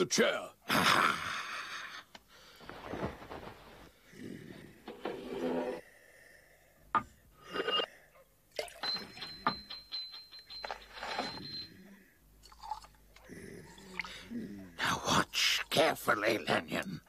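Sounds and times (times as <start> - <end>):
glass vials clinking: 8.6 - 13.0
high bell-like ringing tone: 8.8 - 12.0.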